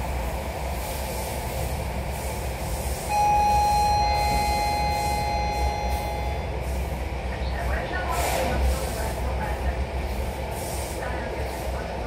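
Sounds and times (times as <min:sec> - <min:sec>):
electric train rumbling: 0:00.0 - 0:12.0
high-pitched tone: 0:03.1 - 0:06.6.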